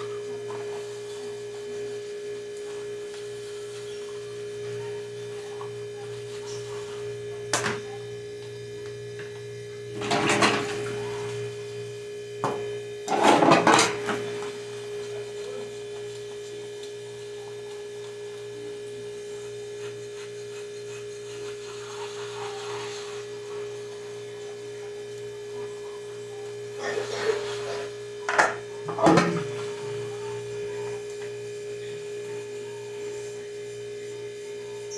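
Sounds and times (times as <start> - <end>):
electrical hum: 0.0 - 34.9
rinsing and handling dishes: 10.0 - 11.1.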